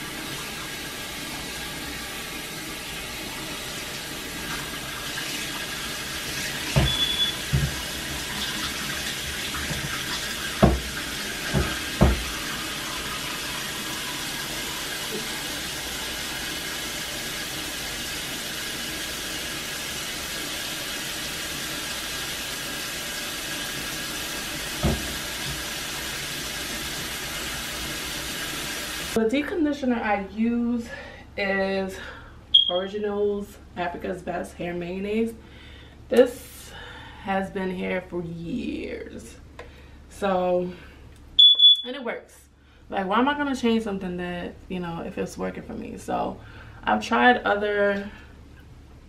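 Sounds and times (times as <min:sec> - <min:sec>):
faucet running: 0:00.0 - 0:29.2
dull thumps and knocks: 0:06.8 - 0:07.8, 0:10.6 - 0:10.9, 0:11.5 - 0:12.3, 0:24.8 - 0:25.6.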